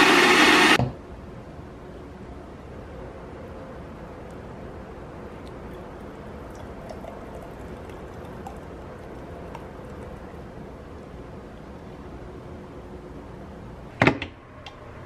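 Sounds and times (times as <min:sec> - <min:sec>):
steady background noise: 0:00.8 - 0:15.0
smoothie pouring into a glass: 0:05.2 - 0:12.0
soft wet ticks and plops: 0:05.3 - 0:10.6.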